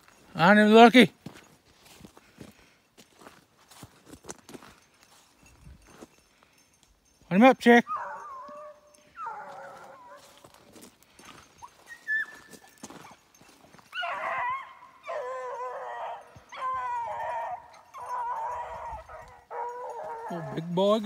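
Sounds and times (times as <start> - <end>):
hound baying: 7.6 - 21.0.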